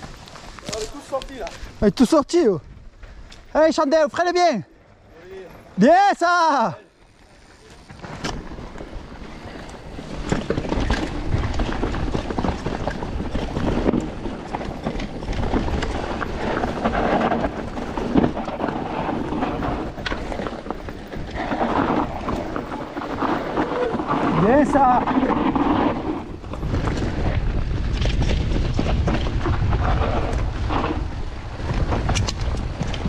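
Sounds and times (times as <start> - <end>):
bike rattling: 0.0 - 33.0
bike tyres rolling over dirt: 0.0 - 33.0
wind buffeting microphone: 7.0 - 33.0.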